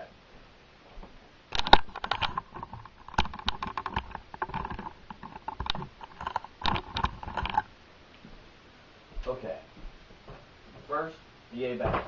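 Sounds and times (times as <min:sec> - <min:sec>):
camera handling noise: 0:01.5 - 0:07.7.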